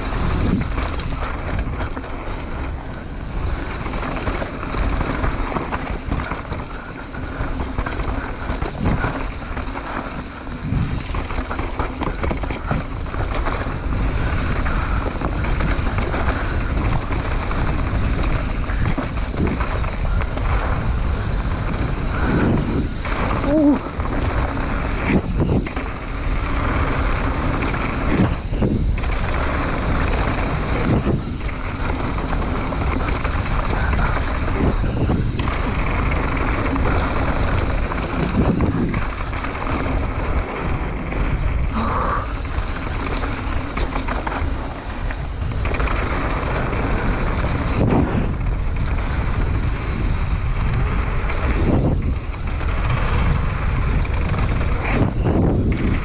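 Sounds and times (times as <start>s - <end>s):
knobby tyres rolling on dirt: 0.0s - 56.0s
wind noise on microphone: 0.0s - 56.0s.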